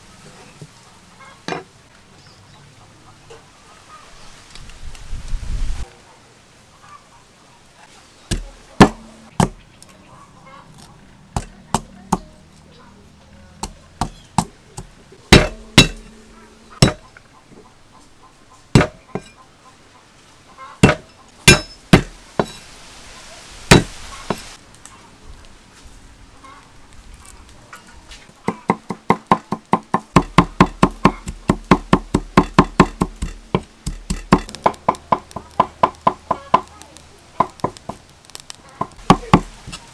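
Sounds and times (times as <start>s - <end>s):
cleaver chopping on wooden board: 8.3s - 9.6s, 13.6s - 16.1s, 16.8s - 17.0s, 18.8s - 19.3s, 20.8s - 22.6s, 23.7s - 24.4s, 28.5s - 36.7s.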